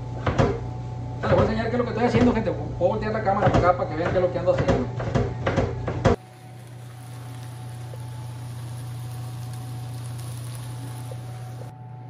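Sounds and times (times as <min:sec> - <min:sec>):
gas burner low hum: 0:05.5 - 0:12.0
food sizzling in a wok: 0:06.2 - 0:11.7.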